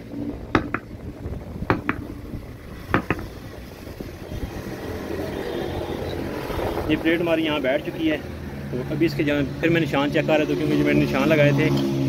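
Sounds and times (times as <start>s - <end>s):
wheel knocking on wooden block: 0.5s - 0.9s, 1.7s - 2.1s, 2.9s - 3.4s.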